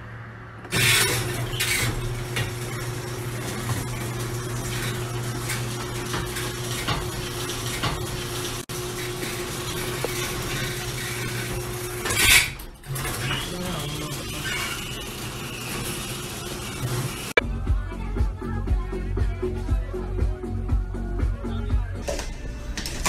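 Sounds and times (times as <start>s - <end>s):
garage door motor hum: 0.6s - 17.4s, 22.0s - 23.0s.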